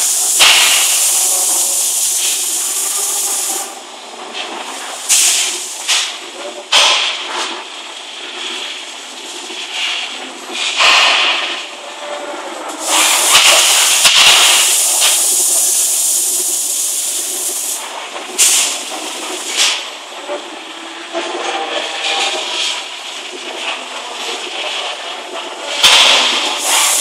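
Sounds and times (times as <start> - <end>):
compressed air hissing: 0.0 - 3.8, 4.6 - 6.1, 12.8 - 19.8, 25.8 - 27.0
steady machinery hum: 0.0 - 27.0.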